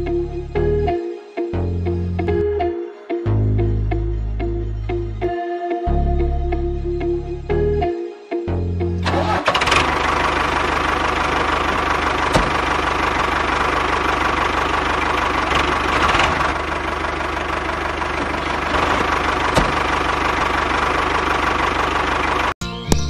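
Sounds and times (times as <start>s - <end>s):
engine idling: 9.0s - 22.6s.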